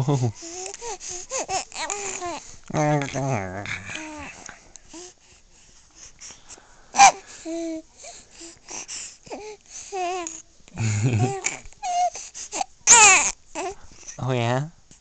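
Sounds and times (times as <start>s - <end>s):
baby cooing and squealing: 0.4s - 4.4s, 9.3s - 10.4s, 11.2s - 13.8s.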